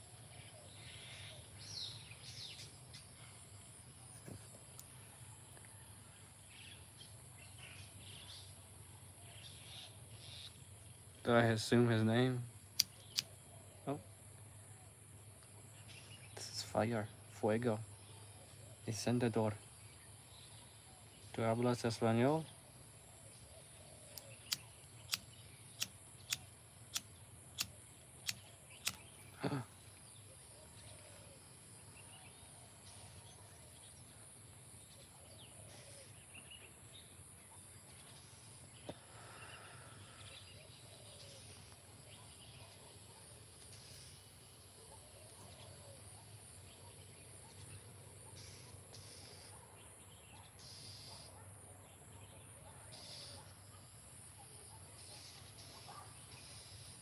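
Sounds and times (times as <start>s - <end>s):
sharp clicks: 12.8s - 13.3s, 24.1s - 29.2s.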